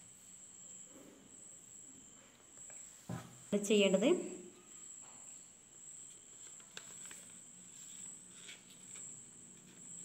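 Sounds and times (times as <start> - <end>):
steady high-pitched tone: 0.0 - 6.6
paper rustling and creasing: 6.3 - 10.0.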